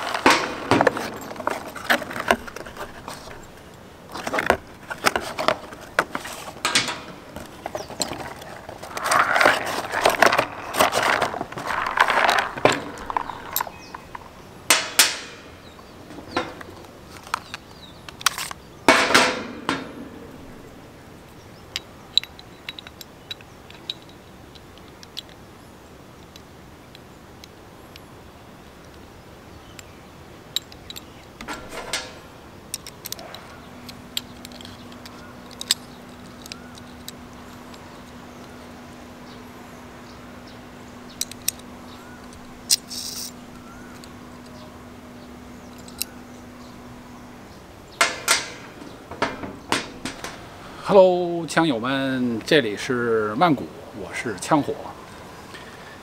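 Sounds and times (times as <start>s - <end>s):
small metal parts clicking: 0.0s - 15.7s, 21.7s - 25.4s, 30.5s - 38.6s, 41.1s - 44.6s, 45.7s - 46.2s
cardboard box rustling: 0.1s - 6.6s, 7.3s - 13.6s.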